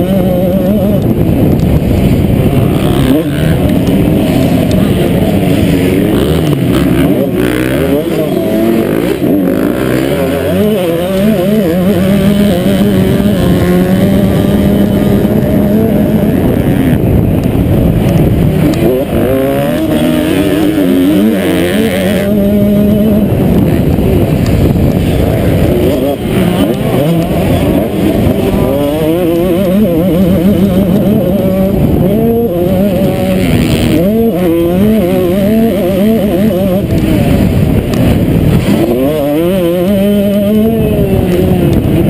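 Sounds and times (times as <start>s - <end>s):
motocross bike engine revving: 0.0s - 42.0s.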